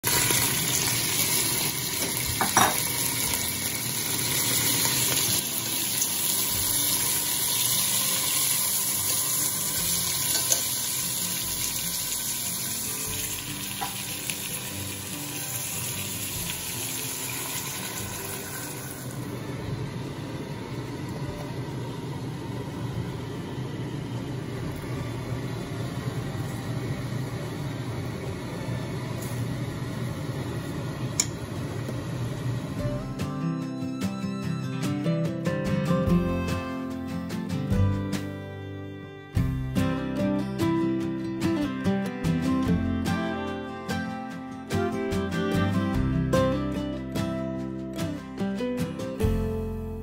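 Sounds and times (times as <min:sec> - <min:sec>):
food sizzling in hot oil: 0:00.0 - 0:20.6.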